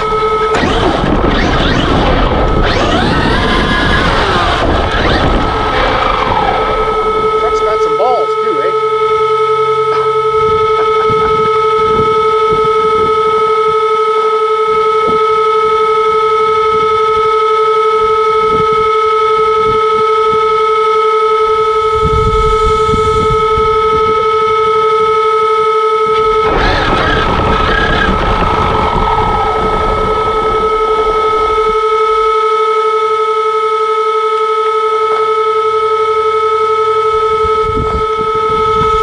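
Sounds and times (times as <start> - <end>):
rc truck motor rushing through snow: 0.0 - 8.0
high electronic whine: 0.0 - 39.0.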